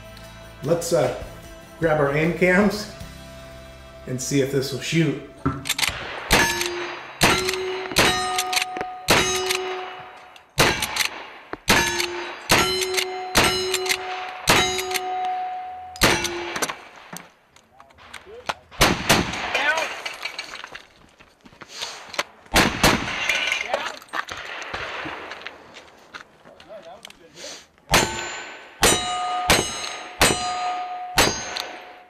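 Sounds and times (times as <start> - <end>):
rifle shots: 5.5 - 17.2, 18.0 - 20.4, 22.0 - 25.6, 27.9 - 32.0
steel target ringing: 6.3 - 10.8, 11.7 - 16.8, 27.9 - 32.0.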